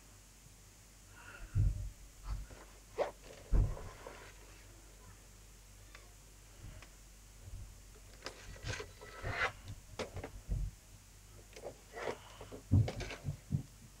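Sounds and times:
toy car handling clicks and scrapes: 8.1 - 10.3, 11.5 - 13.3.

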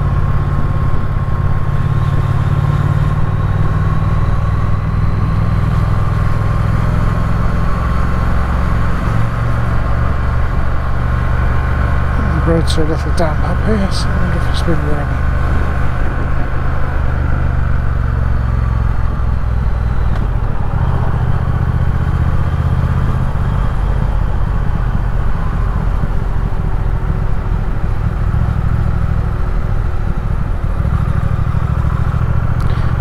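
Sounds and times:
motorcycle engine running: 0.0 - 33.0
wind rushing over microphone: 13.6 - 31.8.

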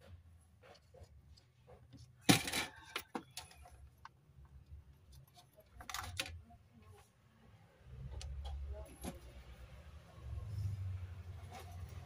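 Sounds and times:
tools clattering and clicking: 0.6 - 4.1.

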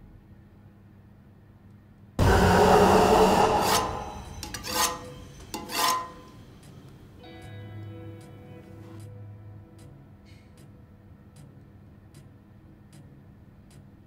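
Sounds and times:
rasping scrape: 2.2 - 6.4.

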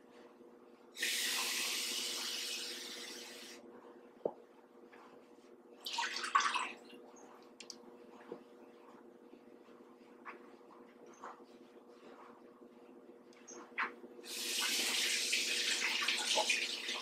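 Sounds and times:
click: 7.6 - 7.8.

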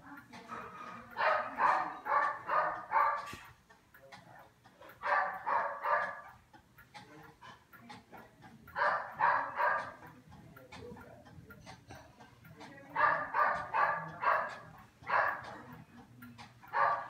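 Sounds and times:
dog barking: 0.6 - 3.5, 5.0 - 6.4, 8.8 - 10.0, 13.0 - 15.5, 16.7 - 17.0.

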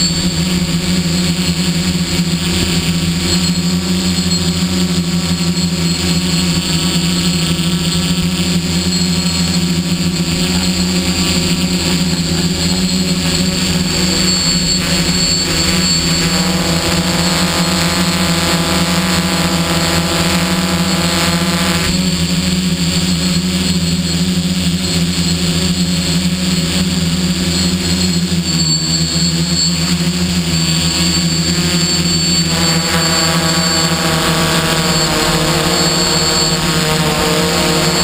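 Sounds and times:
drone motors humming: 0.0 - 38.0.

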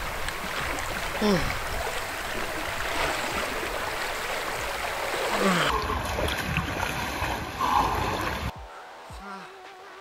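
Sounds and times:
water sloshing around person wading: 0.0 - 8.5
river rushing: 0.0 - 9.0.

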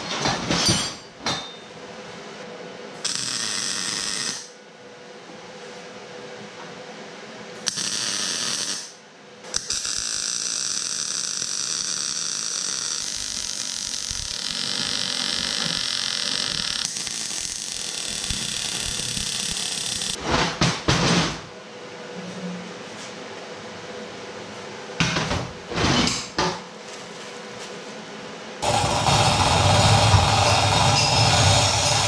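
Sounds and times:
arc welder crackling hiss: 3.0 - 4.6, 7.6 - 20.2, 28.6 - 32.0.

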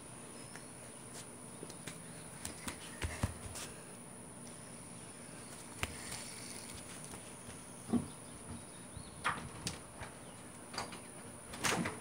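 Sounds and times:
bare feet on concrete: 0.5 - 3.9, 5.3 - 8.7.

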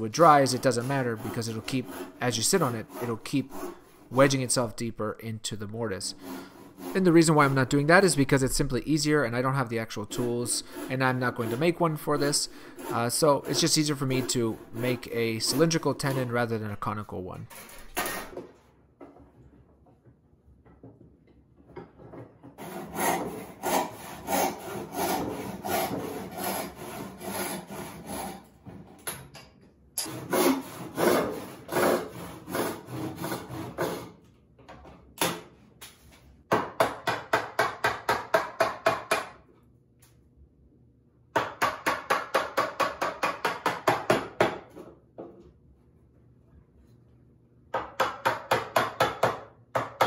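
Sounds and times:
handsaw cutting wood: 0.1 - 4.5, 6.0 - 8.1, 10.1 - 16.4, 22.6 - 28.5, 30.0 - 34.2.

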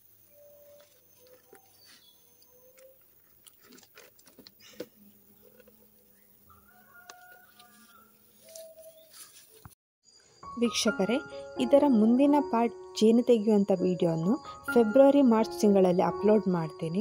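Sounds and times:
string tying clicks and rustles: 0.6 - 6.2.

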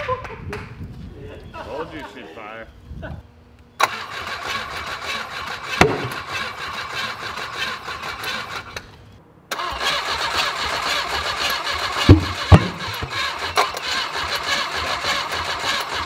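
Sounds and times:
people talking: 1.1 - 3.2
engine cranking on starter: 3.8 - 16.0
loud sharp pops: 5.8 - 6.2.

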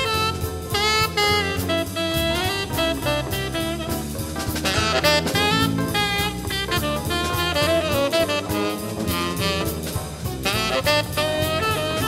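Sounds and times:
bass: 0.0 - 12.0
guitar: 0.0 - 12.0
saxophone melody: 0.0 - 12.0
swinging drum beat: 0.0 - 12.0.

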